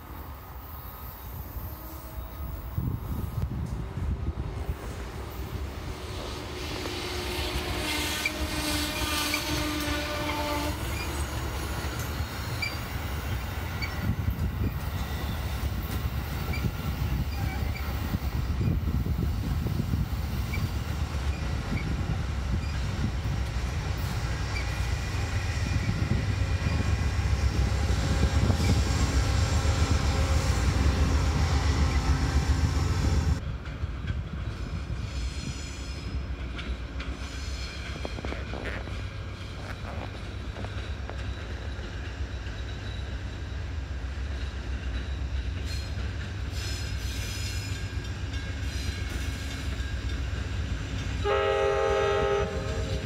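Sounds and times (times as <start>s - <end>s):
train wheels rumbling on rail: 0.0s - 53.0s
wheels squealing: 10.8s - 15.6s.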